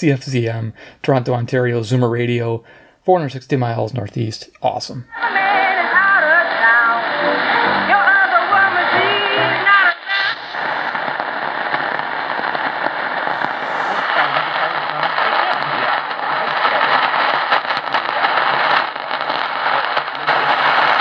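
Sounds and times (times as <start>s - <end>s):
weak radio station: 0.0s - 2.5s, 3.1s - 21.0s
crackling static crashes: 4.2s - 21.0s
radio static hiss: 4.6s - 21.0s.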